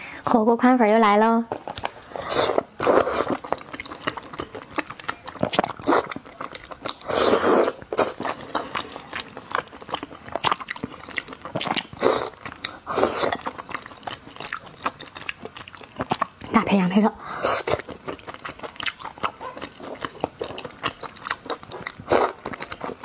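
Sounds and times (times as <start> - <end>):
person slurping noodles: 2.1 - 3.4, 7.0 - 8.2, 11.8 - 13.4.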